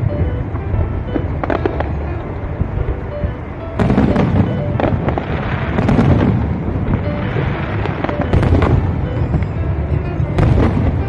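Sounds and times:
fireworks bursting rumble: 0.0s - 11.0s
sharp firework bangs: 2.6s - 11.0s.

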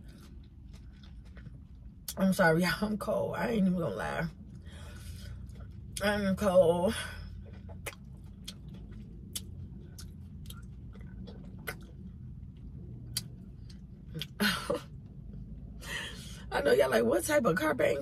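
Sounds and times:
person chewing food: 0.0s - 2.2s, 4.4s - 6.0s, 7.3s - 14.4s.

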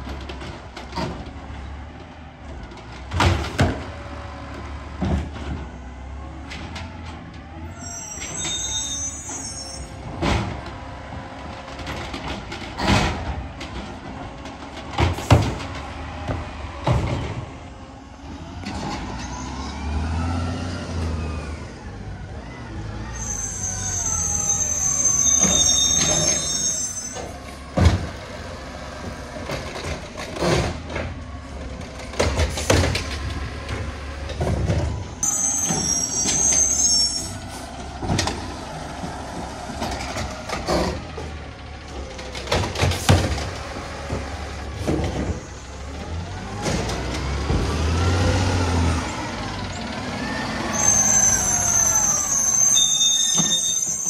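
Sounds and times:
high-pitched squeals: 7.8s - 10.0s, 23.1s - 27.4s, 35.2s - 37.7s, 50.2s - 54.0s
garbage truck diesel engine revving: 10.5s - 25.4s, 27.2s - 52.7s
bins knocking and banging: 11.5s - 17.6s, 27.5s - 28.4s, 29.4s - 36.4s, 42.0s - 48.1s.

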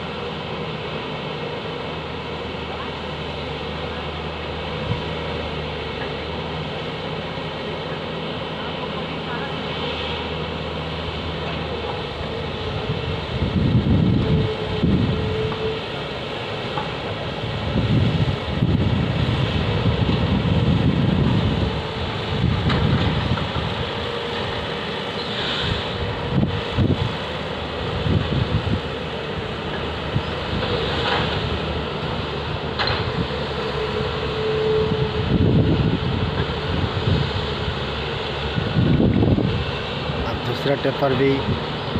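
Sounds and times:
heavy diesel engines droning: 0.0s - 41.9s
wind buffeting microphone: 12.6s - 15.6s, 17.4s - 24.0s, 25.9s - 30.8s, 34.8s - 40.5s.

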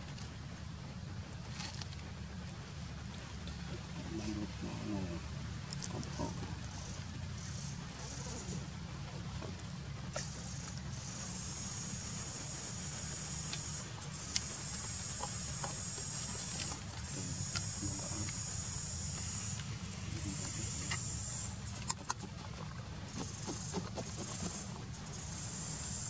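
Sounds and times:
high-pitched insect buzzing: 10.2s - 19.6s, 20.3s - 21.5s, 23.2s - 26.0s.

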